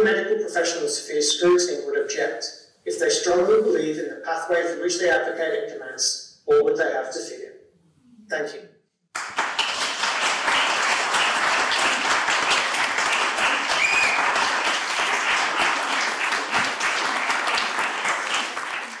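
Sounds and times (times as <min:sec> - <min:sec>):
audience applause: 0:09.2 - 0:19.0.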